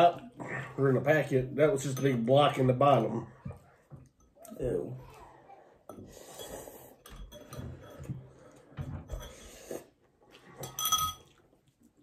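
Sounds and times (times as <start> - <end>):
metal spoon clinking ceramic bowl: 5.9 - 8.2, 10.6 - 11.4
noodles being slurped: 7.7 - 10.8.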